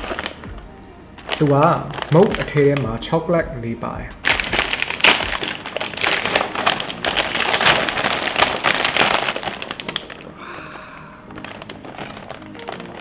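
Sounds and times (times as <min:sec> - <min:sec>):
plastic snack bag crinkling: 0:00.0 - 0:00.6, 0:01.2 - 0:03.2, 0:04.2 - 0:13.0
snack balls poured into paper tray: 0:04.3 - 0:10.3, 0:11.3 - 0:13.0.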